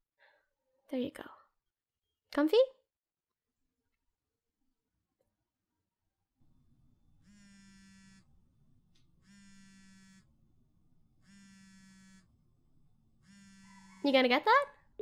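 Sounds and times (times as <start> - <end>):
phone vibrating: 7.2 - 8.4, 9.2 - 10.4, 11.2 - 12.4, 13.2 - 14.1.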